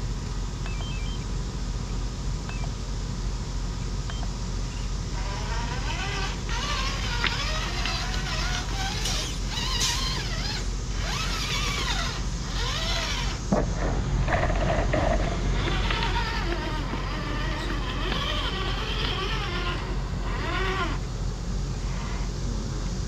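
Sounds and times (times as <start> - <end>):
toy car electric motor whining: 4.7 - 13.5, 14.2 - 21.1.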